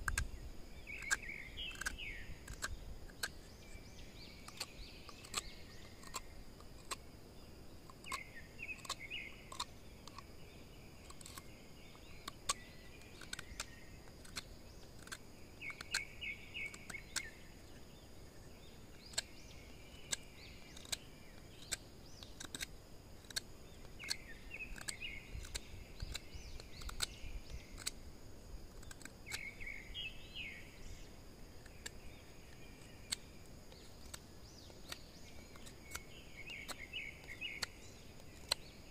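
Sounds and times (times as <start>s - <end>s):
birds chirping: 0.0s - 38.9s
high insect drone: 0.0s - 38.9s.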